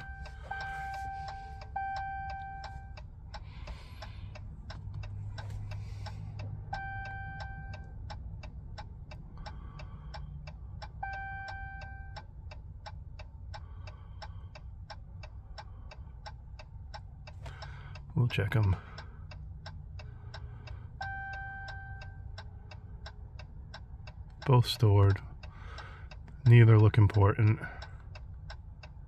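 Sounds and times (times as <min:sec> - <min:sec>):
warning chime: 0:00.0 - 0:03.0.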